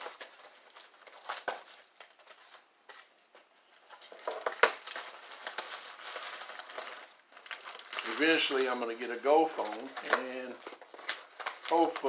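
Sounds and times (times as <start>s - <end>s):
packing wrap rustling: 0.0s - 12.0s.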